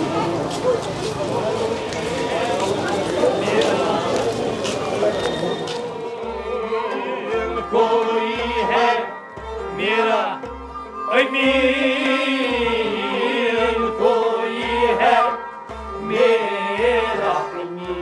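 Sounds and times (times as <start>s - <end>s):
melodic line: 6.7s - 17.8s.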